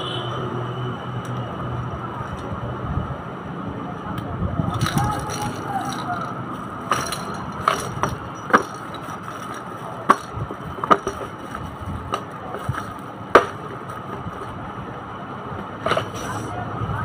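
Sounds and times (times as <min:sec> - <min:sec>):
plastic parts knocking and clicking: 0:04.7 - 0:14.5.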